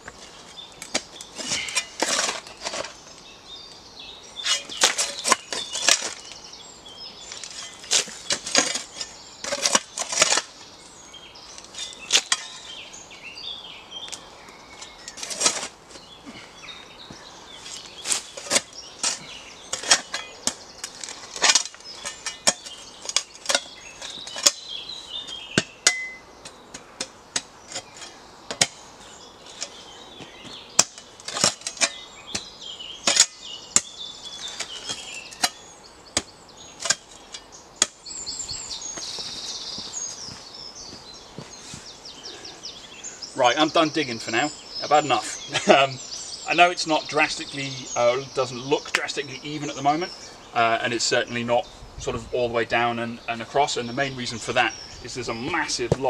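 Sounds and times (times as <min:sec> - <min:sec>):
spade digging into rocky soil: 0:00.0 - 0:03.1, 0:04.4 - 0:06.3, 0:07.3 - 0:10.6, 0:11.6 - 0:12.8, 0:14.8 - 0:16.1, 0:17.7 - 0:28.8, 0:30.4 - 0:38.2
birds chirping: 0:00.0 - 0:56.0.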